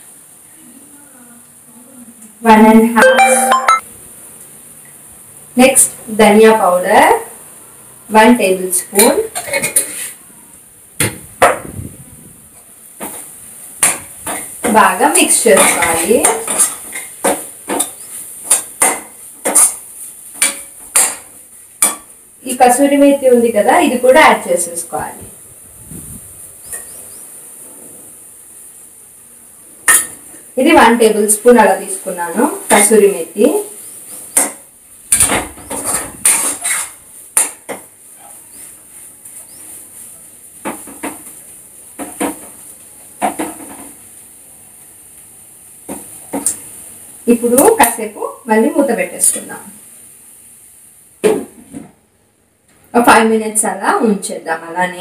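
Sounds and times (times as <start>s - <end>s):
spatula scraping a pan: 9.4s - 10.2s, 15.4s - 21.2s, 35.7s - 37.5s
steel spoon scraping a pot: 35.8s - 37.0s.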